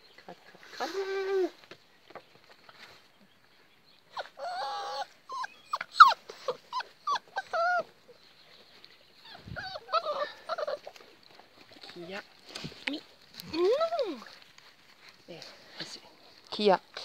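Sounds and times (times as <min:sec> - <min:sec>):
puppy whining: 0:04.1 - 0:08.2, 0:09.2 - 0:11.1
puppies yipping: 0:04.1 - 0:11.4.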